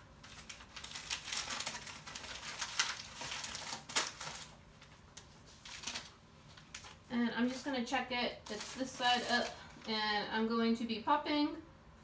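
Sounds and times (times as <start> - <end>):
paper rustling and crinkling: 0.2 - 7.6, 8.4 - 10.0.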